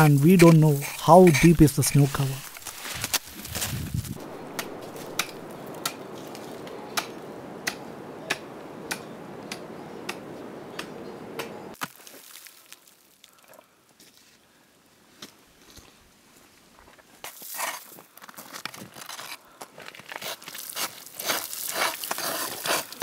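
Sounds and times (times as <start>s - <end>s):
footsteps clicking on icy snow: 0.0s - 6.6s, 16.9s - 23.0s
footsteps crunching in snow: 0.0s - 6.6s, 17.3s - 23.0s
steady hiss: 0.0s - 7.2s.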